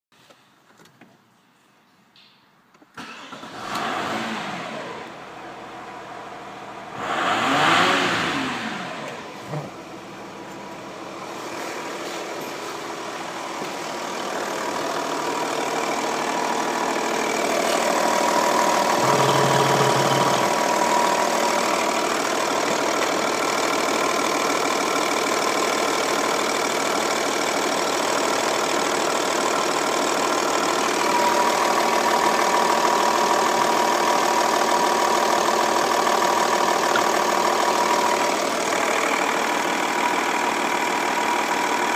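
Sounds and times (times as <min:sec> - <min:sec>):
diesel engine revving and idling: 0:03.2 - 0:41.9
steady engine whine: 0:04.0 - 0:24.0.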